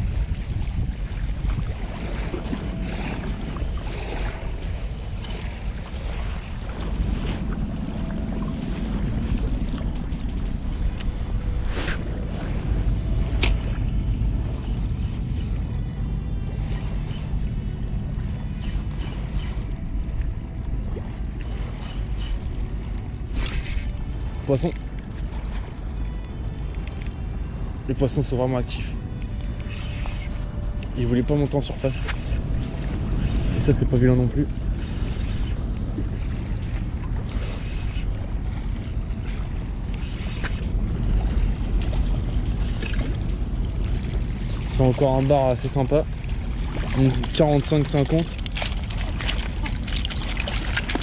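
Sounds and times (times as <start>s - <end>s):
small waves lapping: 0.0s - 15.8s, 16.4s - 51.0s
wind buffeting microphone: 0.0s - 51.0s
waves lapping rocky shore: 23.3s - 25.6s, 42.4s - 51.0s.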